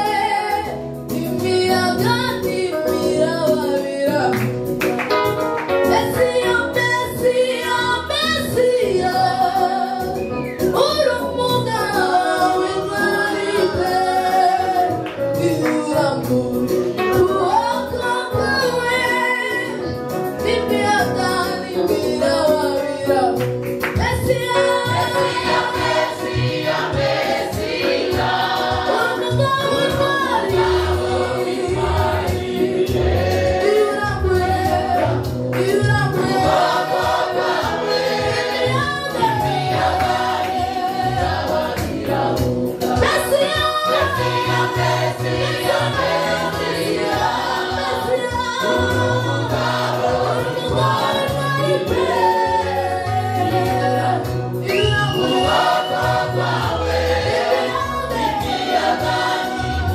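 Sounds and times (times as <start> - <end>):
woman singing lead: 0.0 - 4.7, 5.8 - 26.4, 33.4 - 37.0, 38.6 - 42.0, 42.7 - 45.9, 47.7 - 56.2, 57.4 - 59.9
instrumental backing with bass: 0.0 - 59.9
choir singing: 24.8 - 35.3, 36.1 - 59.9.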